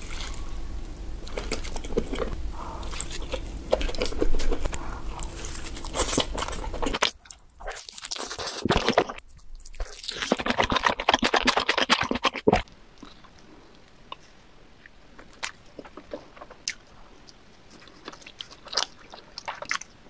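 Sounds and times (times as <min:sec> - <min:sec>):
wet sticky chewing: 0:00.0 - 0:00.6, 0:01.2 - 0:13.5, 0:15.2 - 0:20.0
low background hum: 0:00.0 - 0:20.0
crisp chewing clicks: 0:01.2 - 0:13.5
crunching pizza crust: 0:01.2 - 0:13.5.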